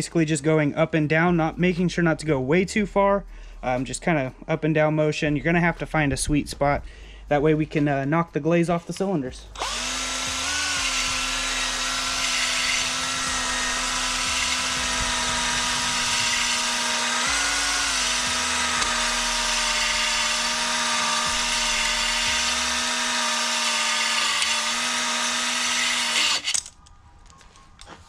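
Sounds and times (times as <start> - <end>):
electric drill motor whine: 9.6 - 26.7.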